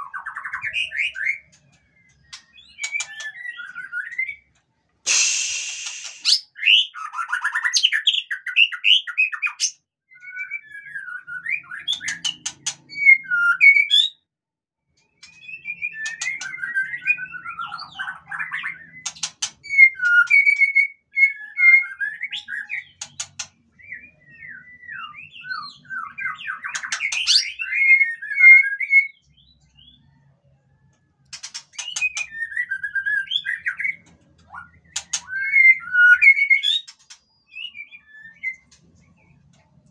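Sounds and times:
loud hiss burst: 0:05.1 - 0:06.4
sharp bird clicks: 0:05.1 - 0:06.4, 0:19.0 - 0:20.4, 0:23.0 - 0:23.5
bird singing whistled phrases: 0:05.1 - 0:12.3, 0:15.2 - 0:23.0, 0:31.8 - 0:38.6.

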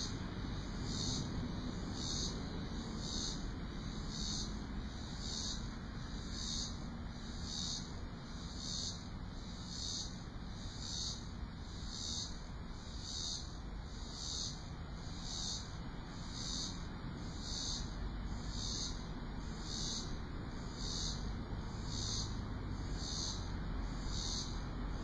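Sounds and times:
low background rumble: 0:00.0 - 0:11.8
insects chirping in trees: 0:00.0 - 0:25.0.

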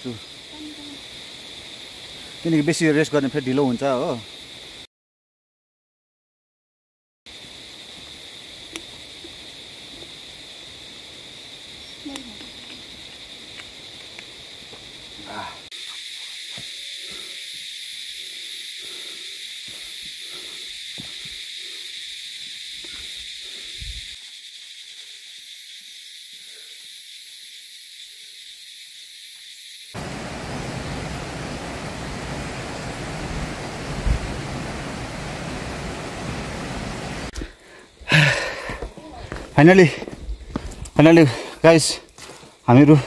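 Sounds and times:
steady high-pitched hiss: 0:00.0 - 0:04.9, 0:07.3 - 0:43.0
footsteps on dirt trail: 0:14.6 - 0:15.0, 0:19.6 - 0:21.6, 0:30.0 - 0:43.0.

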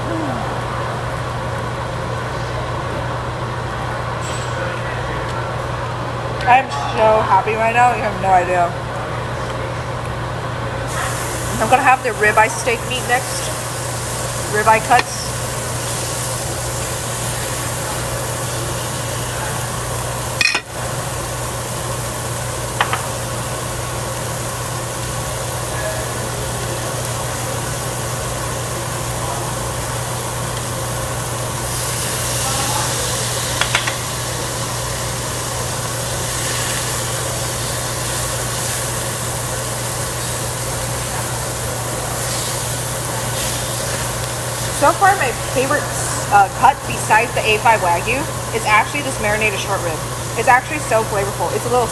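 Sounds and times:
exhaust hood humming: 0:05.4 - 0:51.9
meat sizzling on a grill: 0:10.9 - 0:51.9.

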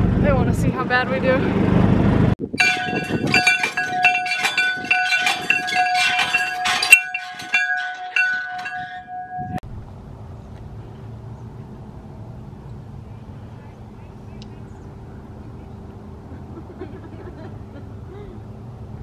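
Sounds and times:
bell clanging rapidly: 0:02.6 - 0:09.6.

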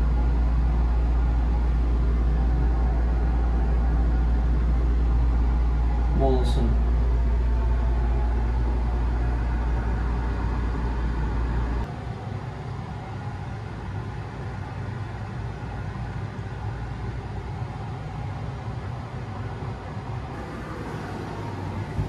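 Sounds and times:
strong deep rumble: 0:00.0 - 0:11.9, 0:20.1 - 0:22.0
gondola rumble and hiss: 0:00.0 - 0:22.0.

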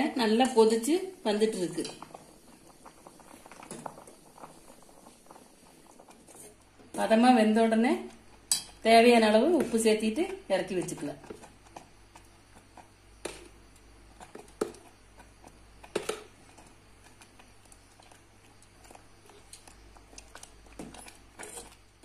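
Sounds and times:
spoon clinking steel pot: 0:08.5 - 0:08.8.

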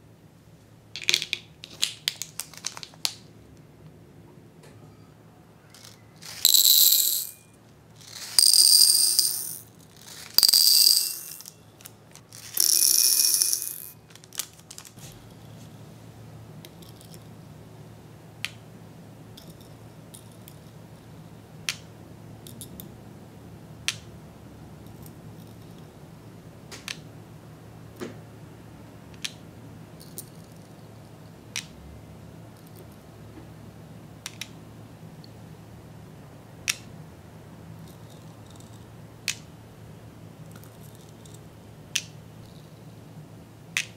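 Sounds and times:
beads clicking into plastic tray: 0:05.8 - 0:07.4, 0:08.0 - 0:11.6, 0:12.2 - 0:15.0
candy beads pouring into glass: 0:05.8 - 0:07.4, 0:08.0 - 0:11.5, 0:12.3 - 0:15.0.

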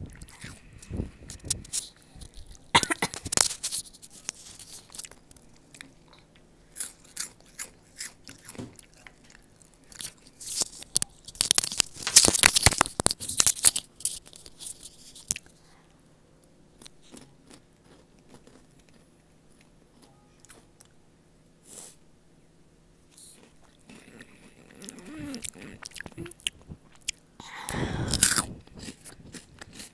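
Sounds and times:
chewing: 0:00.0 - 0:11.8, 0:16.8 - 0:21.0, 0:23.1 - 0:27.2, 0:28.1 - 0:29.9
chips crunching: 0:00.0 - 0:15.5, 0:16.8 - 0:19.7, 0:28.0 - 0:29.9.

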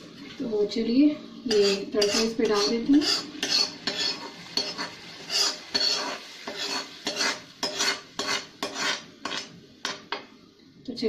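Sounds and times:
spoon scraping a small pan: 0:01.5 - 0:10.1.

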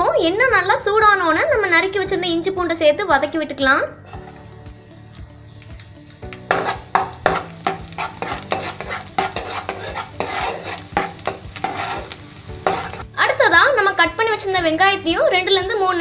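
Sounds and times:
metal ladle scraping metal pan: 0:04.0 - 0:05.0, 0:06.4 - 0:13.1
garlic and ginger sizzling in oil: 0:04.0 - 0:16.0.

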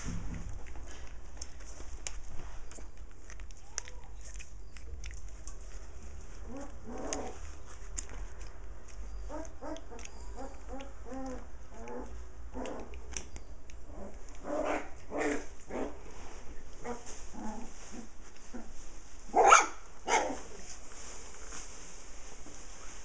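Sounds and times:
puppies yipping and whining: 0:06.3 - 0:07.7, 0:08.9 - 0:15.5
dog barking loudly: 0:19.3 - 0:20.4.

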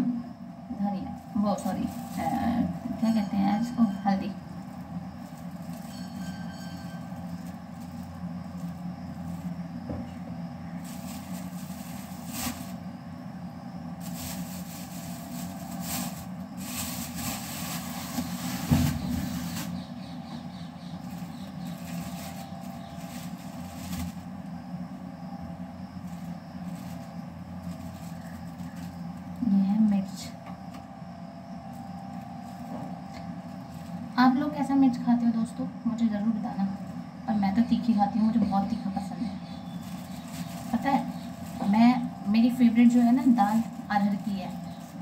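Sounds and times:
steady low hum: 0:00.0 - 0:45.0
plastic bags rustling: 0:01.1 - 0:03.2, 0:03.8 - 0:09.6, 0:10.7 - 0:12.9, 0:13.9 - 0:19.9, 0:21.0 - 0:24.5, 0:26.0 - 0:29.5, 0:31.7 - 0:34.1, 0:39.6 - 0:45.0.

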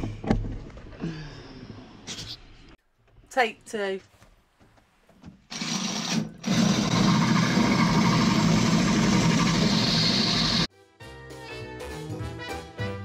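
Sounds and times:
electric power tool cutting: 0:05.5 - 0:10.7.

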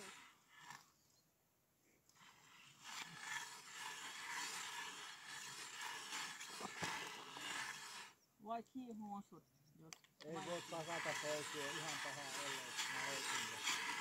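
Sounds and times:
ice auger blades scraping ice: 0:00.0 - 0:01.0, 0:02.1 - 0:08.2, 0:10.3 - 0:14.0.

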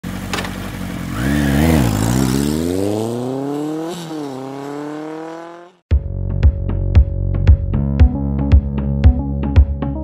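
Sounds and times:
engine revving: 0:00.9 - 0:05.8.

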